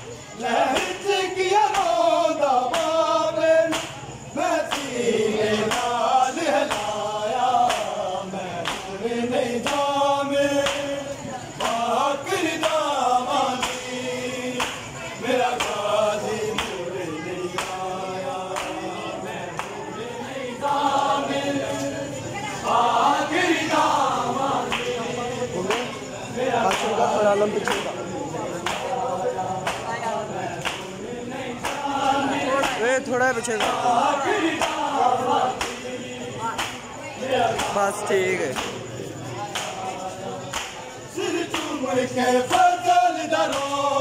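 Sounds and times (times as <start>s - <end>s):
men chanting in unison: 0.0s - 44.0s
hands slapping bare chests: 8.6s - 8.9s.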